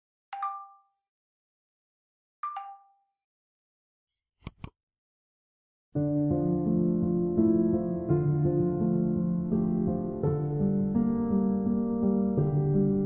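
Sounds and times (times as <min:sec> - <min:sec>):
quick sharp clicks: 0:04.4 - 0:04.8
soft piano music: 0:06.0 - 0:13.0.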